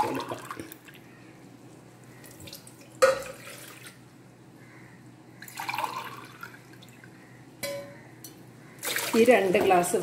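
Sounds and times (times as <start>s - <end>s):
water pouring into a glass: 5.4s - 7.0s
water splashing into a saucepan: 8.8s - 9.6s.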